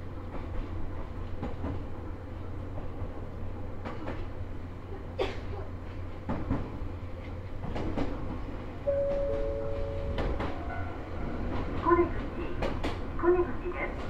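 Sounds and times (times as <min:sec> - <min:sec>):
electric train rumbling: 0:00.0 - 0:14.0
level-crossing warning alarm: 0:08.9 - 0:10.9.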